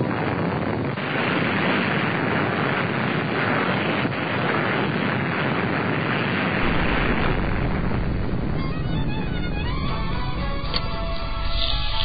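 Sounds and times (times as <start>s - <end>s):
steady rushing noise: 0.0s - 12.0s
deep rumble: 6.6s - 12.0s.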